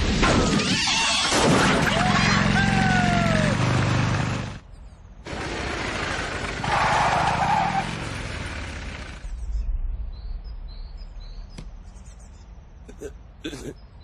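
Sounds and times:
motorcycle engine: 0:01.8 - 0:04.6, 0:05.3 - 0:09.4
birds chirping: 0:08.7 - 0:14.0.

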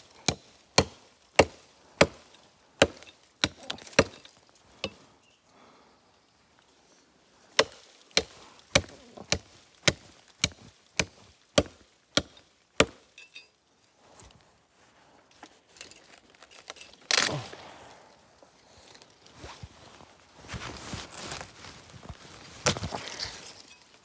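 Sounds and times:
blade chopping into wood: 0:00.2 - 0:04.2, 0:07.6 - 0:13.0.

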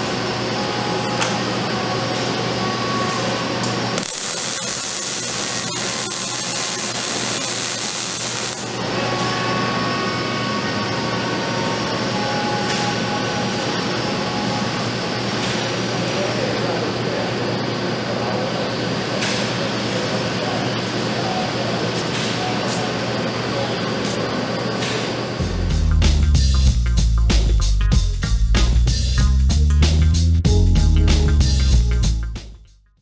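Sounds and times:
welding arc hissing: 0:04.0 - 0:08.8
robot hum: 0:04.0 - 0:10.8.

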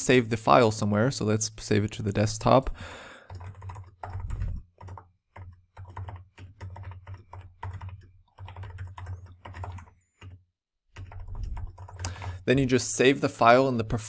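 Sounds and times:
typing on a computer keyboard: 0:03.2 - 0:12.4.

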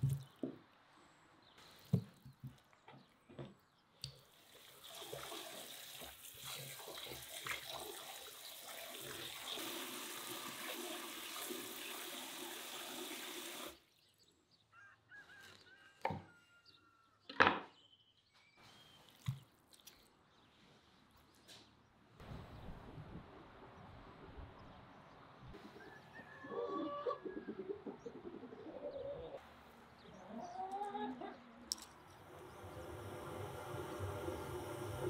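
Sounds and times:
tap water pouring into bowl: 0:04.4 - 0:13.8.

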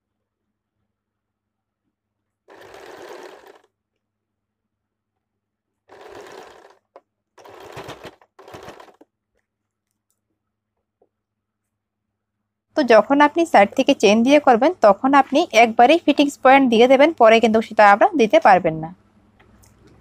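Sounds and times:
sewing machine stitching: 0:02.5 - 0:03.7, 0:05.9 - 0:09.0.

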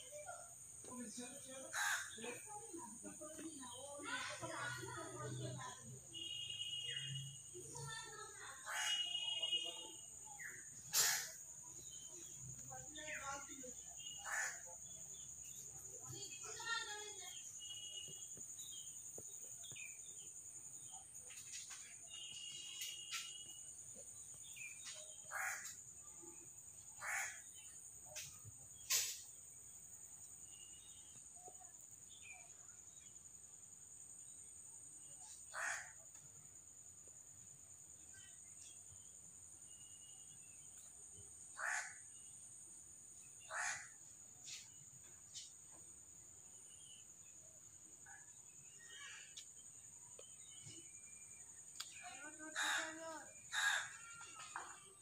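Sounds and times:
crows cawing: 0:01.7 - 0:02.2, 0:14.2 - 0:14.7, 0:25.3 - 0:25.8, 0:27.0 - 0:27.4, 0:35.5 - 0:36.0, 0:41.6 - 0:42.0, 0:43.5 - 0:44.0, 0:52.6 - 0:54.7.

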